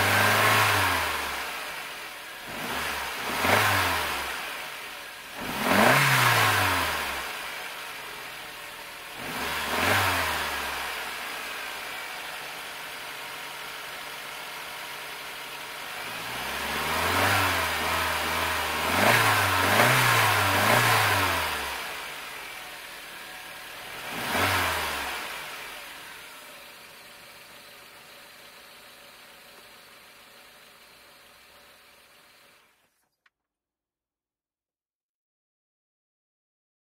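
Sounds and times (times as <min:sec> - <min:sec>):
car engine idling and revving: 0:00.0 - 0:33.1.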